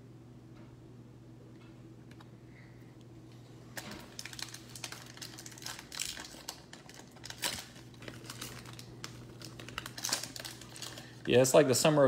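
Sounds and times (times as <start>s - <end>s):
wrapper crinkling as torn open: 3.8s - 11.6s.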